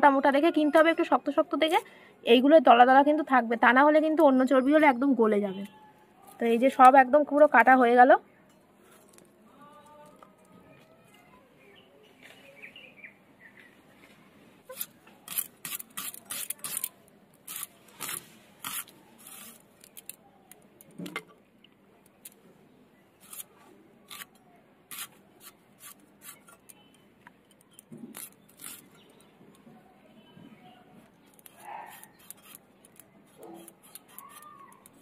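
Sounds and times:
onion cutting strokes: 14.7 - 20.0, 23.2 - 26.7, 28.0 - 29.0, 31.3 - 35.0.

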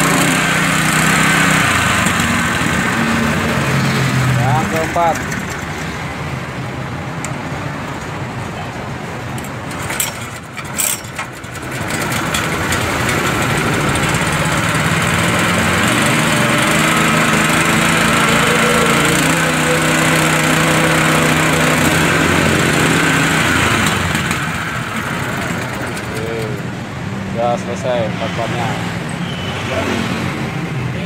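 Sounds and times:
water pump engine running: 0.0 - 6.6, 9.6 - 26.8.

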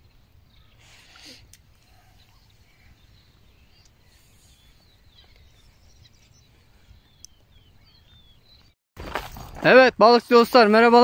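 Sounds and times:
faint bird chirps: 0.0 - 8.8.

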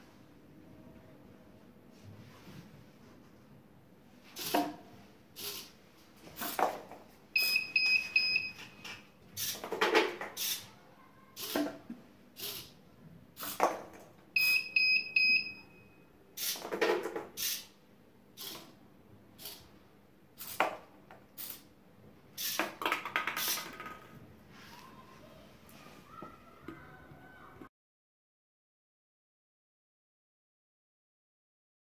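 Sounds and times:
short high buzzer beeps: 7.4 - 8.8, 14.4 - 16.0
plastic balls knocking down a funnel: 22.5 - 24.2.

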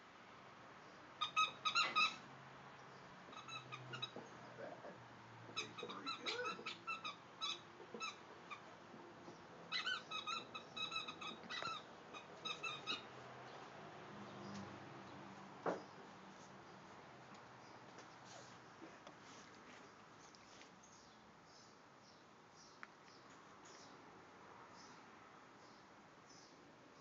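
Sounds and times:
squeaky dog toy squeaking: 1.2 - 2.2, 3.3 - 4.2, 5.5 - 8.7, 9.7 - 13.1.

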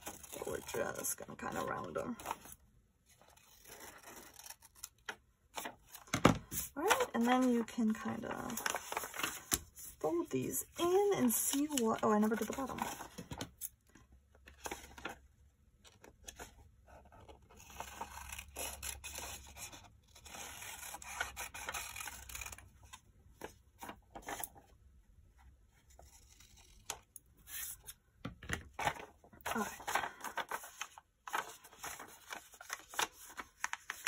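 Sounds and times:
paper rustling: 3.2 - 13.6, 27.4 - 34.0.

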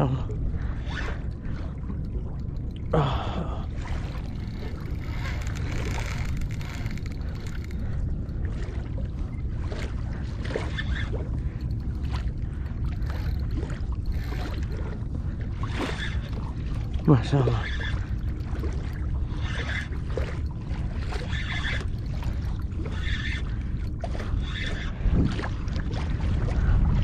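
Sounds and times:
water lapping against a hull: 0.0 - 27.0
wind rumble on microphone: 0.0 - 27.0
person gasping: 3.0 - 3.7.

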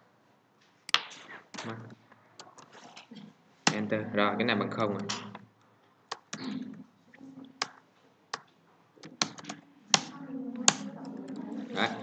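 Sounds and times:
keyboard and mouse clicks: 0.9 - 3.1, 6.1 - 6.8, 7.4 - 11.5.

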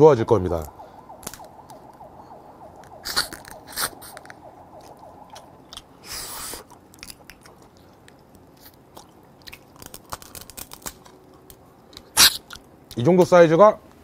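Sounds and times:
noisy rush: 0.0 - 8.3
chewing crab shell: 6.7 - 12.6.

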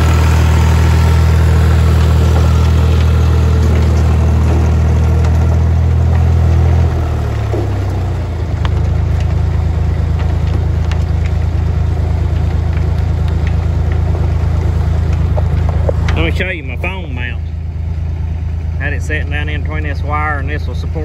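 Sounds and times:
tractor engine idling: 0.0 - 21.0.

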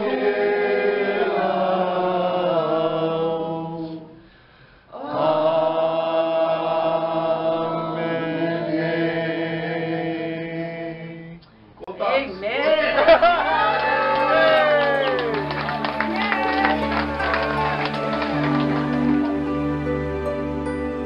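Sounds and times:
group of people singing: 0.0 - 4.3, 4.9 - 11.4.

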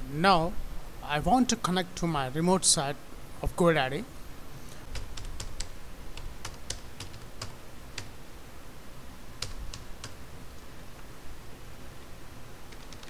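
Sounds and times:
keyboard typing: 4.9 - 8.1, 9.4 - 10.2, 12.7 - 13.0.

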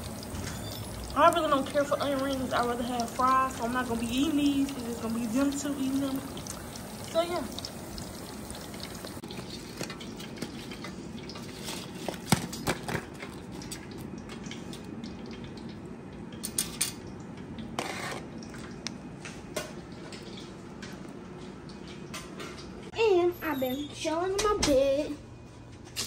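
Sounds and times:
hot oil sizzling in a deep fryer: 0.0 - 18.5.

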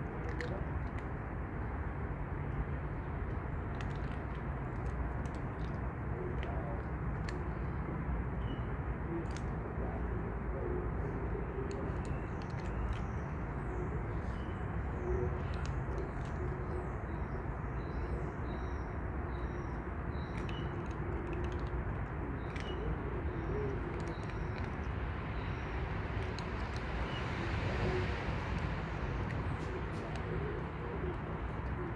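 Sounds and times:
bird cooing call: 22.5 - 24.6, 27.6 - 28.2, 29.5 - 31.9.

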